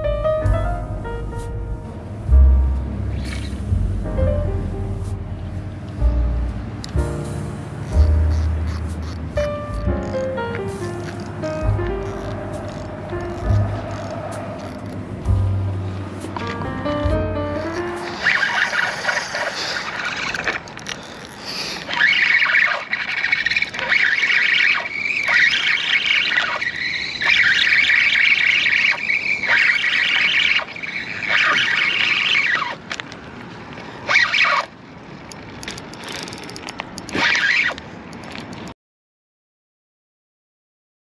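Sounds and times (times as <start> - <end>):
fishing reel drag screaming: 3.2 - 3.7, 7.8 - 9.2, 10.8 - 15.2, 17.6 - 32.9, 34.0 - 34.8, 37.1 - 37.8.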